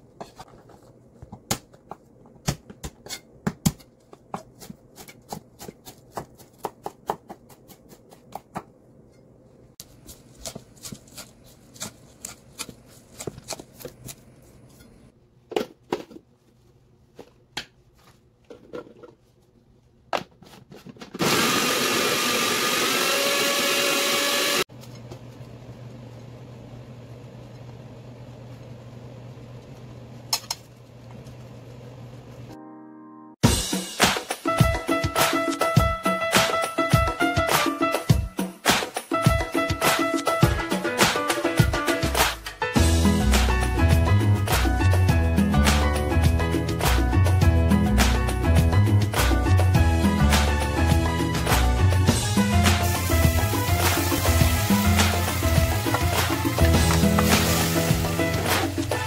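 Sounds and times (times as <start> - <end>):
food processor whirring: 21.1 - 24.7.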